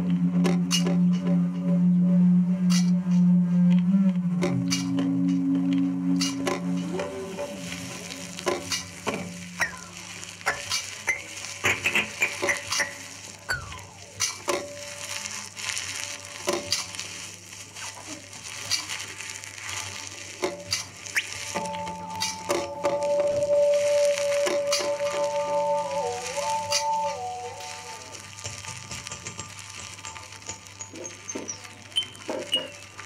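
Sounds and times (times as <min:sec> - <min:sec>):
steady low hum: 0:00.0 - 0:10.4
low drone: 0:00.0 - 0:10.7, 0:21.6 - 0:28.3
electronic crackling and clicking: 0:04.4 - 0:33.0.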